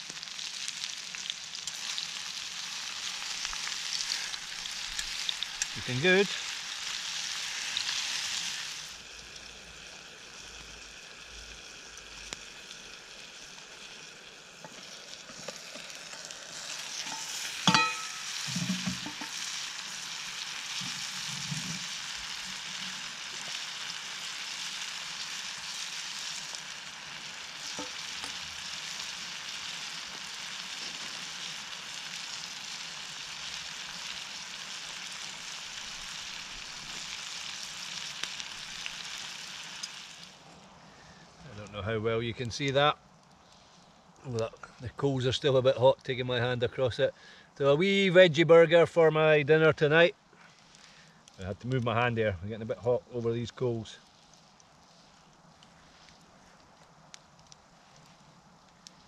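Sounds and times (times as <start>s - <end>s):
vegetables sizzling in a frying pan: 0.0s - 40.5s.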